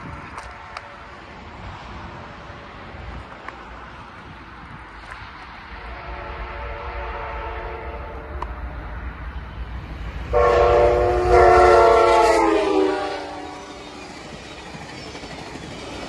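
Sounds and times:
train rumble: 0.0 - 16.0
train horn blast: 0.4 - 1.3, 5.8 - 8.5, 10.3 - 14.0.

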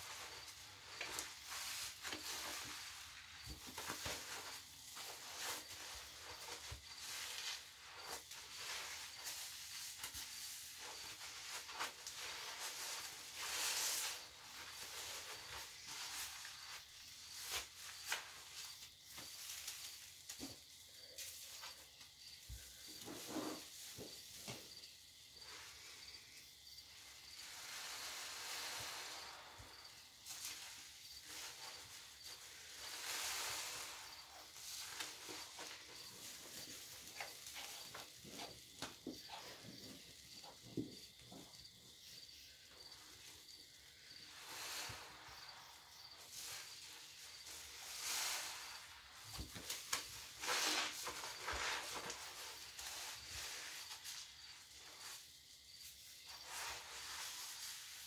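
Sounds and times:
foam fizzing crackle: 27.4 - 38.5, 44.2 - 55.2, 56.3 - 58.0.

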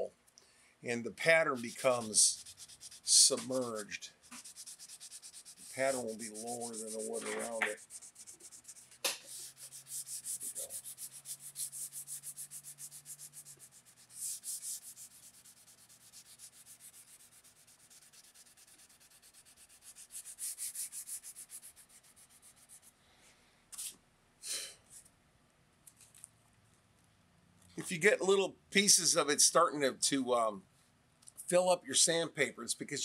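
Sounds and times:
sandpaper rubbing on wood: 1.3 - 22.9.

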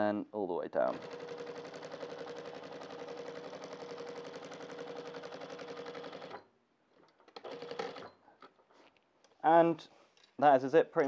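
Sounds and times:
sewing machine stitching: 0.8 - 6.5, 7.2 - 8.2.

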